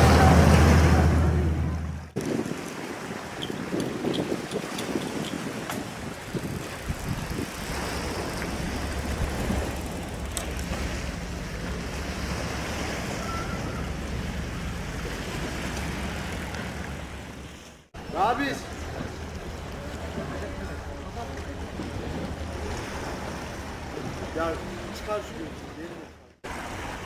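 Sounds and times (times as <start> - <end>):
low engine drone: 0.0 - 2.2, 7.5 - 17.4
wind on microphone: 0.0 - 17.5.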